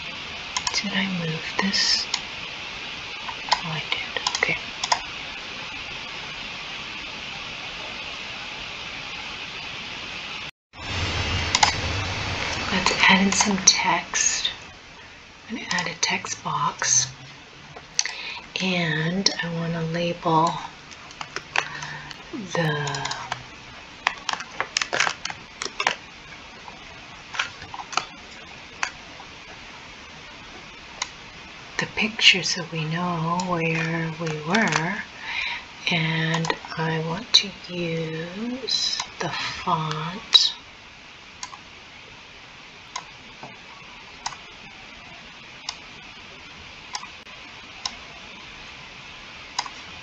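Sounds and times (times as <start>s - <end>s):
steady hiss: 0.0s - 50.0s
computer mouse clicking: 0.6s - 0.8s, 3.3s - 5.0s, 22.9s - 23.4s, 41.4s - 41.6s.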